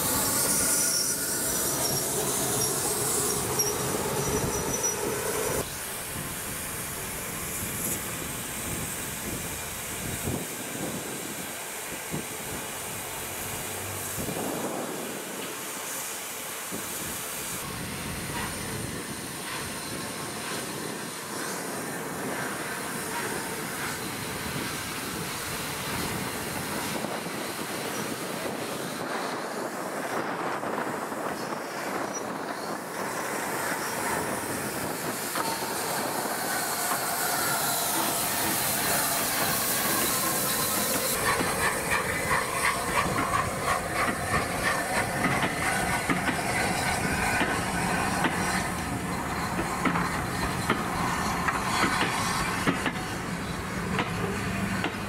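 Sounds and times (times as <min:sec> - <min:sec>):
steam hissing: 0:00.0 - 0:55.0
steam train rumble: 0:00.0 - 0:55.0
faint wheel squeal: 0:00.2 - 0:05.7
wheels clacking over rail joints: 0:31.9 - 0:55.0.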